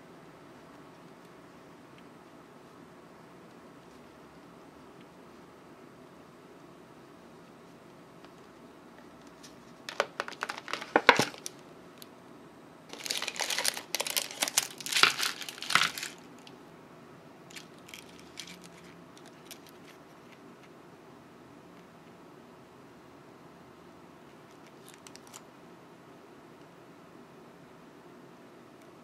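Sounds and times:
candy wrappers crinkling: 0:09.4 - 0:11.6, 0:12.9 - 0:16.5, 0:17.5 - 0:20.4, 0:24.5 - 0:25.4.

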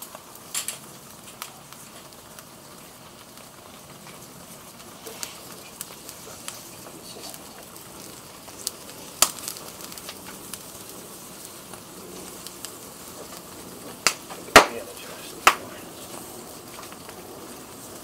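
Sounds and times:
fire crackling and popping: 0:00.0 - 0:18.0
fire hissing: 0:00.0 - 0:18.0.

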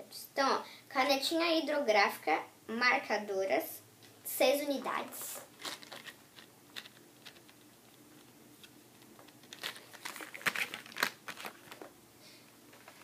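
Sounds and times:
cardboard crinkling and scraping: 0:05.2 - 0:07.6, 0:09.1 - 0:11.9.

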